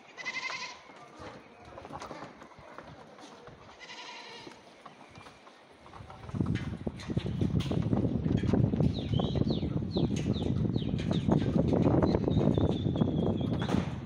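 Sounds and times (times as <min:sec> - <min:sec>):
goats bleating: 0:00.1 - 0:01.0, 0:03.6 - 0:04.6.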